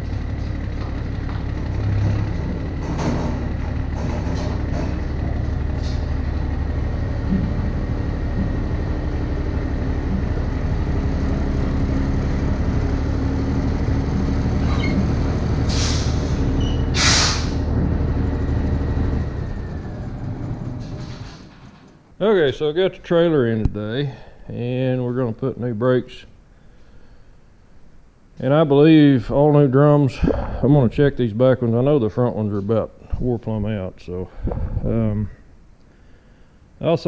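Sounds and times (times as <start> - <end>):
truck engine running: 0.0 - 22.1
air brake hisses: 15.7 - 17.7.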